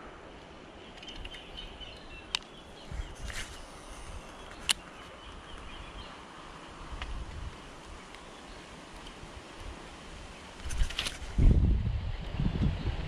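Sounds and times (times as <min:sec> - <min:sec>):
brief rustle: 0:02.3 - 0:05.7, 0:10.6 - 0:11.4.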